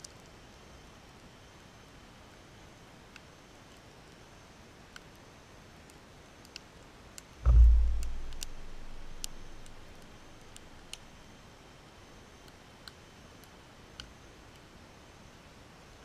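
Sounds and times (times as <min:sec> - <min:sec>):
faint high ticks: 0:05.9 - 0:11.2
heavy low thump with rumble: 0:07.4 - 0:11.1.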